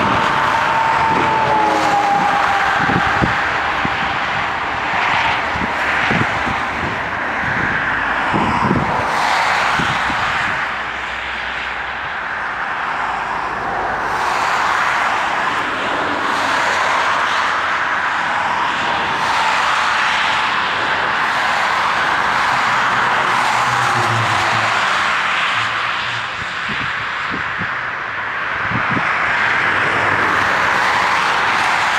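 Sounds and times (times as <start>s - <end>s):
wind buffeting microphone: 0.0s - 10.9s, 20.6s - 30.8s
jet engines at takeoff: 0.0s - 31.9s.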